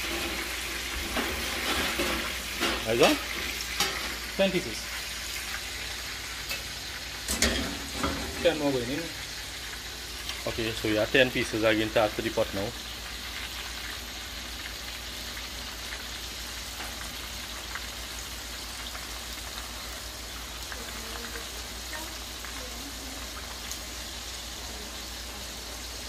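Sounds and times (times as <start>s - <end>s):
chicken sizzling in hot oil: 0.0s - 26.0s
small oil crackles: 0.0s - 26.0s.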